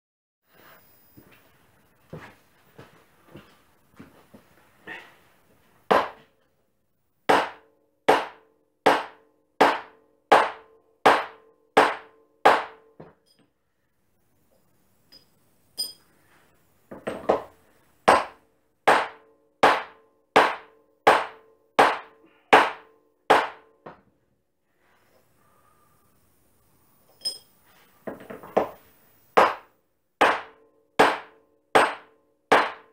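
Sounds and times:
hammer striking metal punch: 7.3s - 13.1s, 18.1s - 23.8s, 29.4s - 32.9s.

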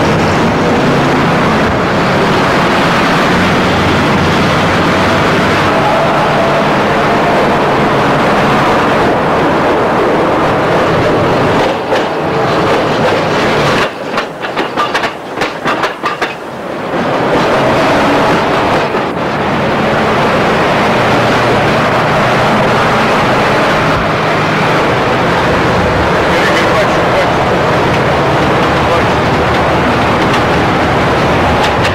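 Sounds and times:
tram passing on tracks: 0.0s - 31.9s
wheel clicks over rail joints: 11.6s - 16.4s, 31.5s - 31.9s.

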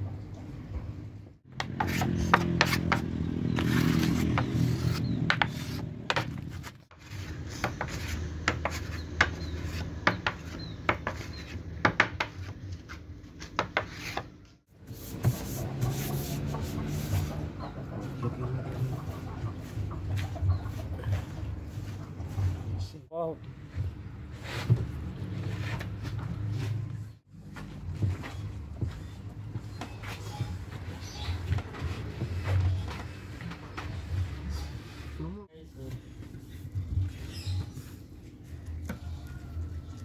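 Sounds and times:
wooden stick scraping glue: 1.6s - 9.8s
hands rubbing veneer sheet: 14.9s - 17.5s.

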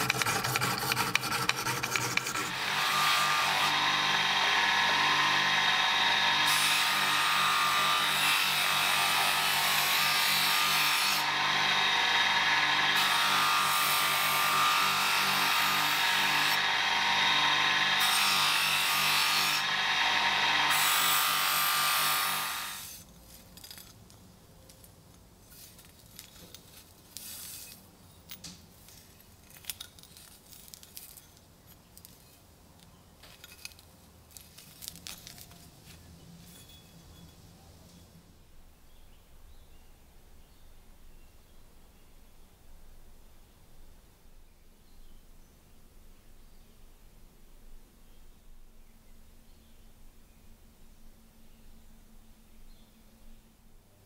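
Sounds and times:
blade rubbing on buffing wheel: 0.0s - 2.8s
electric motor hum: 2.5s - 6.6s, 11.2s - 13.6s, 16.1s - 18.5s, 19.2s - 21.1s.

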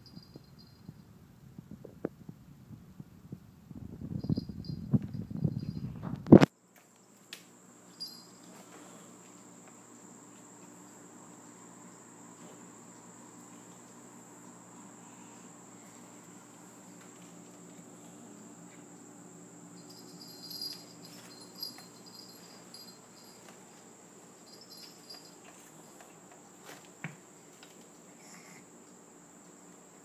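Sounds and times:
low room hum: 0.0s - 30.0s
faint high chirping pulses: 7.9s - 8.6s, 18.0s - 25.9s.

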